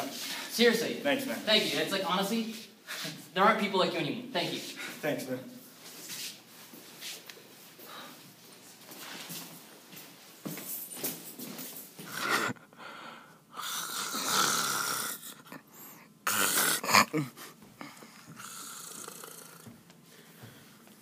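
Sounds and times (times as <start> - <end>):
person snoring loudly: 13.6 - 15.6, 16.2 - 17.4, 18.3 - 19.7.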